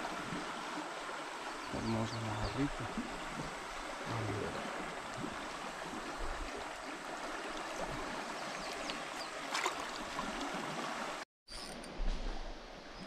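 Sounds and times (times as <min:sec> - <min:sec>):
hands splashing in water: 0:08.7 - 0:10.6.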